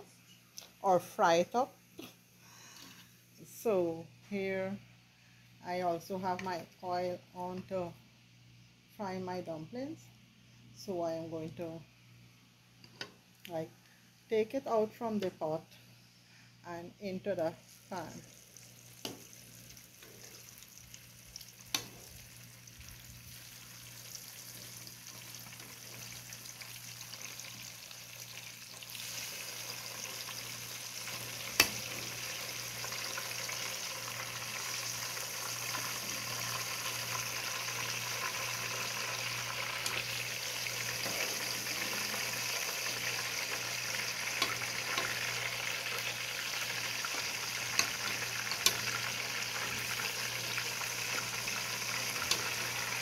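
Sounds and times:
dumplings sizzling in hot oil: 0:17.6 - 0:53.0.

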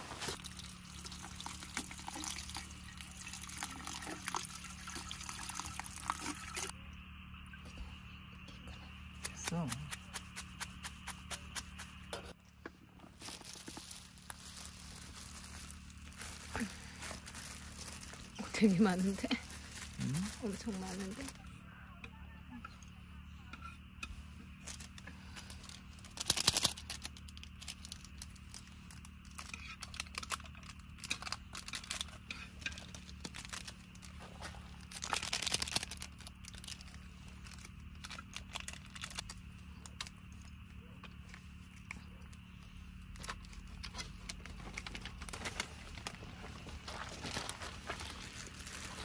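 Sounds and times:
steady low hum: 0:00.0 - 0:49.0
material crinkling and rustling: 0:12.9 - 0:21.4, 0:24.5 - 0:40.6, 0:43.1 - 0:49.0.

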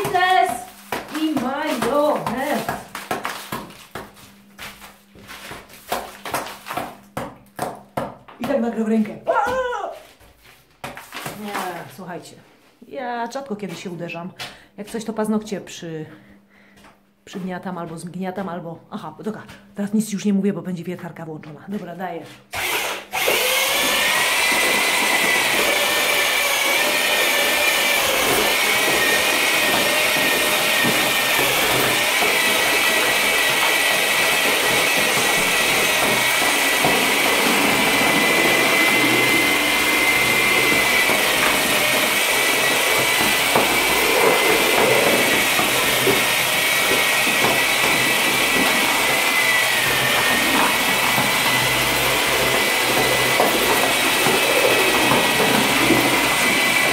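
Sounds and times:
electric drill chipping plaster: 0:00.0 - 0:04.0, 0:22.5 - 0:56.9.

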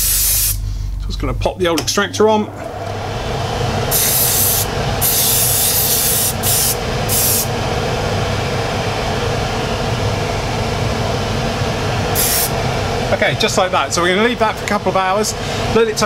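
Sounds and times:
airbrush spraying hisses: 0:00.0 - 0:00.6, 0:03.9 - 0:07.5, 0:12.2 - 0:12.5
extractor fan humming: 0:00.0 - 0:16.0.

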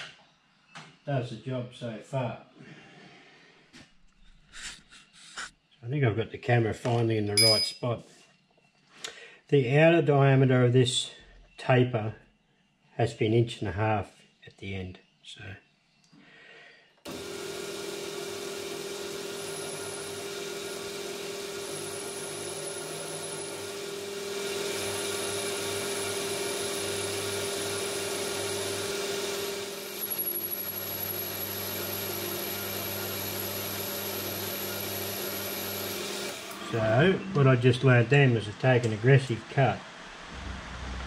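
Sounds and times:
metal lathe cutting with whine: 0:17.1 - 0:37.4.

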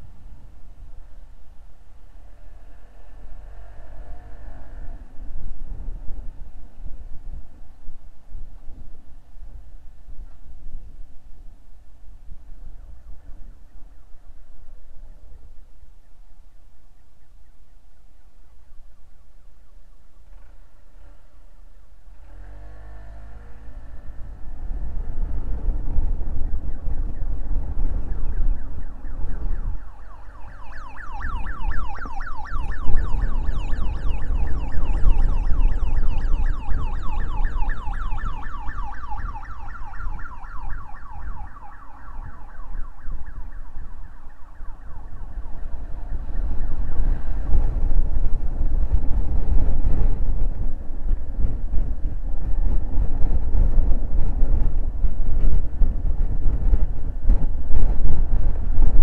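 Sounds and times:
wind rumble and road noise: 0:00.0 - 0:59.0
warbling electronic siren: 0:01.6 - 0:07.2, 0:23.4 - 0:49.4.

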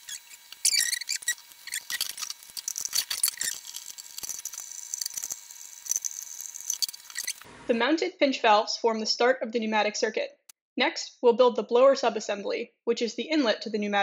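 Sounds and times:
short high squeaks: 0:00.0 - 0:07.5.

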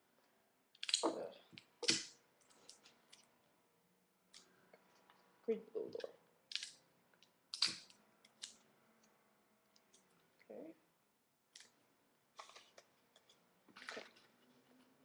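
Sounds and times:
paper tubes rustling and clicking: 0:12.4 - 0:15.0.

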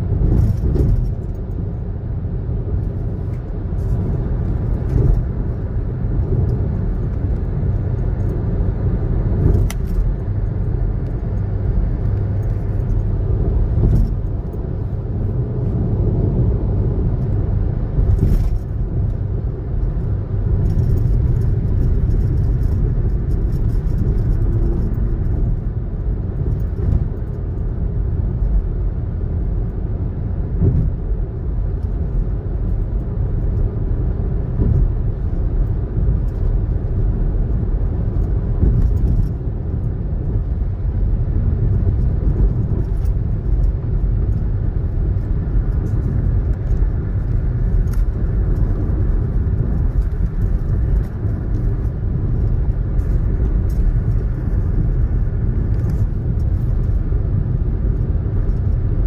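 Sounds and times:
in-car road noise: 0:00.0 - 0:59.0.

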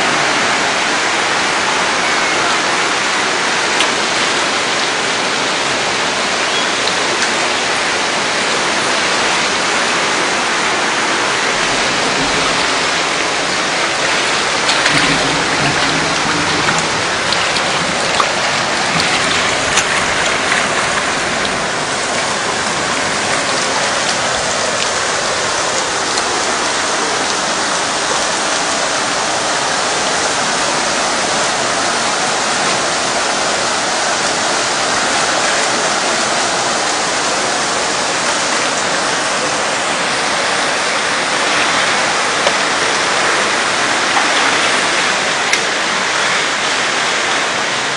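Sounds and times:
floodwater rushing: 0:00.0 - 0:47.9
heavy rain: 0:00.0 - 0:47.9.

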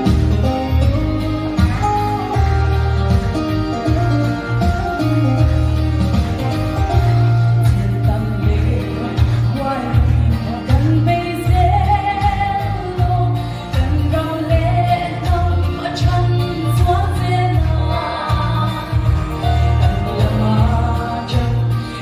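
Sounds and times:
instrumental music with pulsing bass: 0:00.0 - 0:22.0
woman singing into microphone: 0:06.9 - 0:22.0.

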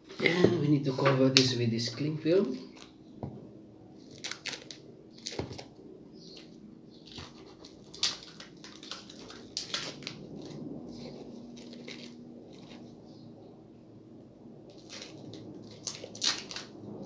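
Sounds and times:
cling film crackling: 0:04.0 - 0:13.5, 0:14.7 - 0:17.0.

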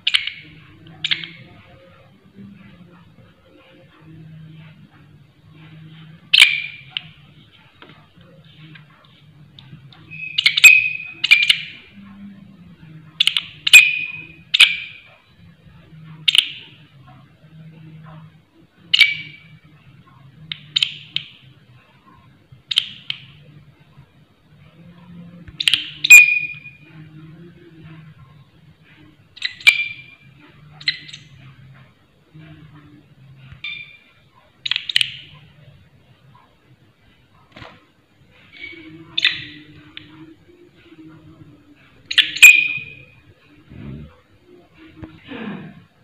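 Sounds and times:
katydid raspy chirps: 0:10.1 - 0:11.7, 0:25.6 - 0:26.8, 0:42.1 - 0:43.2.

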